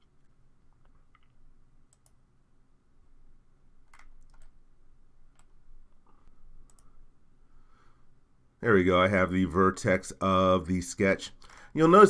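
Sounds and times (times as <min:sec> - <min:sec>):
low steady hum: 0:00.0 - 0:12.0
computer mouse clicks: 0:00.2 - 0:02.2, 0:03.8 - 0:04.6, 0:05.3 - 0:07.0.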